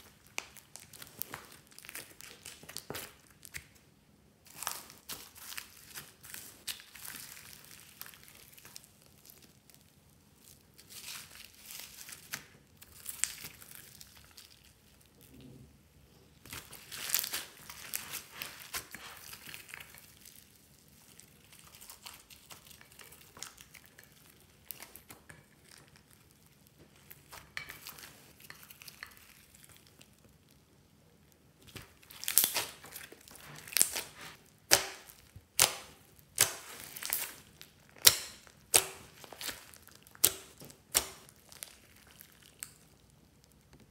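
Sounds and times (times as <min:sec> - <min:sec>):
foam beads crackling and crunching: 0:04.5 - 0:15.1, 0:16.4 - 0:30.5, 0:31.7 - 0:43.7.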